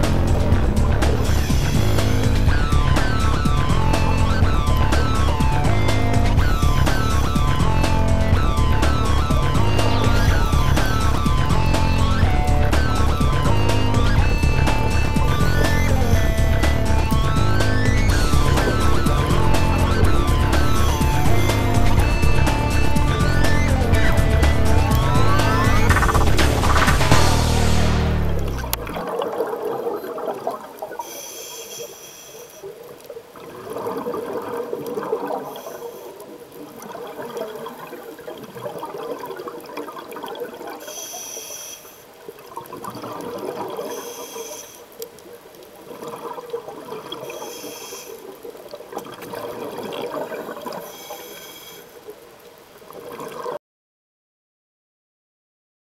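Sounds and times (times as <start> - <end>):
bubbling exhalations: 0.0 - 31.3, 33.4 - 40.9, 42.2 - 44.9, 45.8 - 51.4
diver breathing through regulator: 31.0 - 32.8, 35.4 - 36.3, 40.8 - 42.2, 43.7 - 45.0, 47.1 - 48.4, 50.7 - 52.1.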